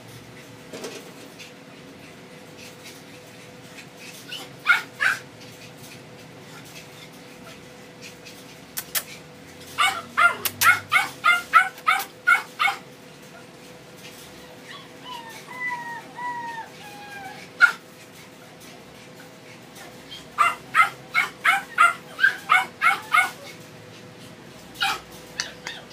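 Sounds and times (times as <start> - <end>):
dog whining: 4.0 - 5.3, 7.4 - 13.5, 14.3 - 23.6, 24.8 - 25.9
dog barking: 4.6 - 5.2, 9.8 - 12.8, 17.6 - 17.8, 20.4 - 23.5, 24.8 - 25.8.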